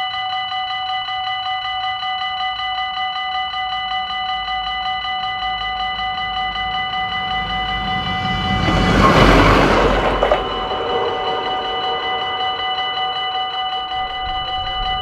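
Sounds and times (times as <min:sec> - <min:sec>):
level crossing bells ringing: 0:00.4 - 0:14.3
train rushing past: 0:04.9 - 0:14.7.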